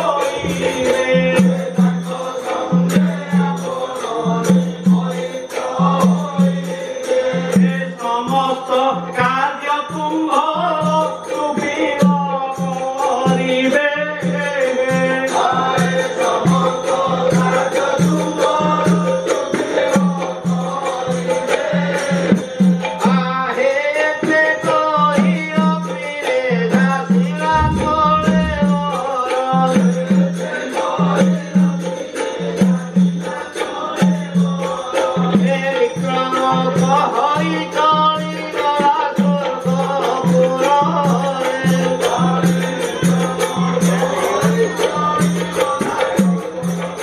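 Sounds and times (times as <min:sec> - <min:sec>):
drum beating steady rhythm: 0:26.8 - 0:30.2.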